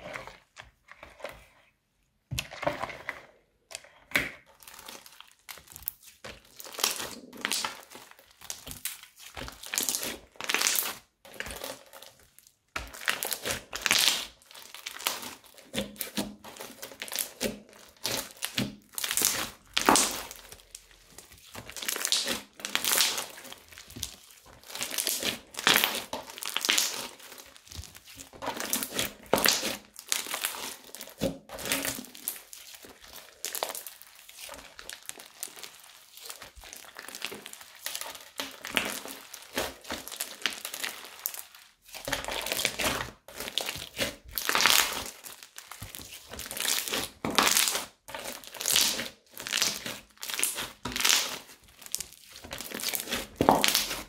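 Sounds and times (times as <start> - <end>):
slime crackling and squelching: 4.1 - 54.0
spatula stirring in bowl: 14.9 - 54.0.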